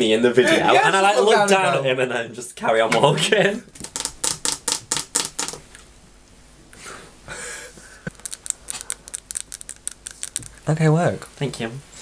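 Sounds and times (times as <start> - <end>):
nails tapping on teeth: 3.8 - 5.6, 8.1 - 11.3
soft breathing: 6.7 - 8.1.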